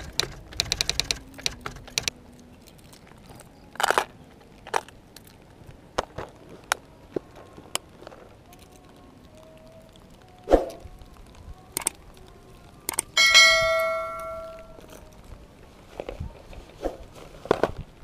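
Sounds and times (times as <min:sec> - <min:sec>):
sharp clicks: 0:00.0 - 0:02.2, 0:11.7 - 0:12.1, 0:12.8 - 0:13.4
bell-like notification ding: 0:13.2 - 0:14.8
handling knocks and rustles: 0:13.2 - 0:18.0.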